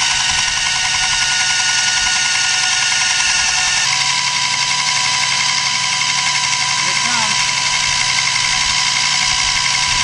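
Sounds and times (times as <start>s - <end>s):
electric starter cranking engine: 0.0s - 10.0s.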